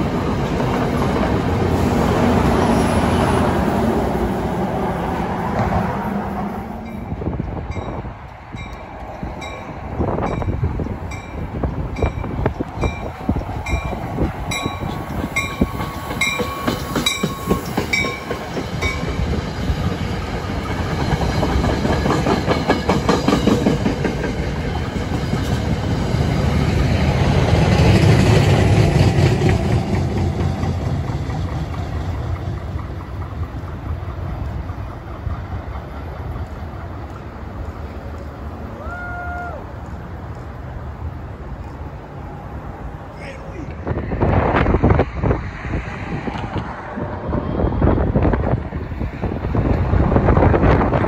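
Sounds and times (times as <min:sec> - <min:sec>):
low rumble of passing train: 0:00.0 - 0:51.0
train bell ringing: 0:06.8 - 0:19.2
wheels clicking over rail joints: 0:07.1 - 0:42.2.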